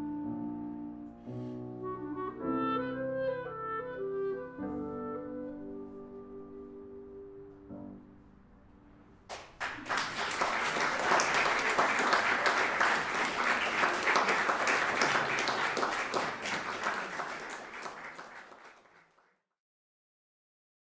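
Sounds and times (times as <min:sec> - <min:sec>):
audience applause: 0:09.3 - 0:19.3.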